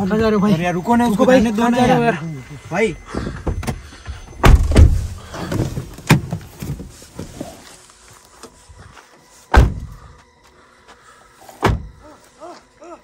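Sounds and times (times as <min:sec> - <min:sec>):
car door knocks and thuds: 0:04.4 - 0:06.9, 0:09.5 - 0:09.9, 0:11.6 - 0:12.0
shuffling: 0:04.9 - 0:09.5.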